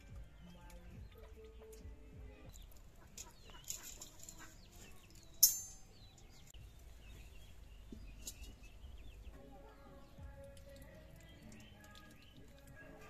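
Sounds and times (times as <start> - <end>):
birds chirping: 0.0 - 13.0
metal cookware clanging: 3.1 - 6.4.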